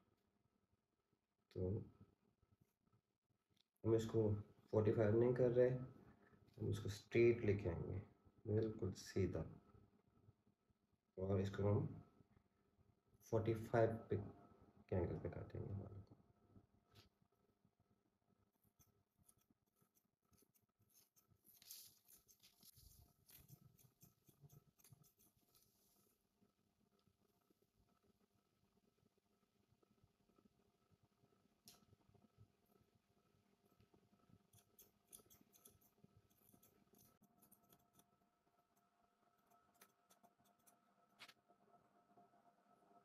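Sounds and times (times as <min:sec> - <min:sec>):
scissors snipping hair: 0:18.8 - 0:25.6, 0:34.5 - 0:38.1, 0:39.4 - 0:40.8.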